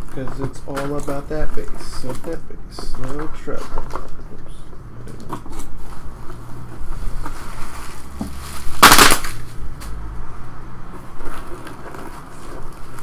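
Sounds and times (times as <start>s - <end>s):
foil packs clicking and rustling: 0.0s - 10.0s, 11.0s - 13.0s
loud foil crinkle: 5.5s - 9.6s, 11.0s - 13.0s.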